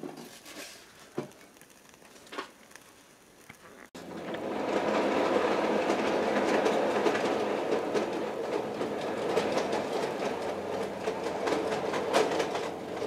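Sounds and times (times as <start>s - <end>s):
fast irregular clicking: 1.1s - 4.0s.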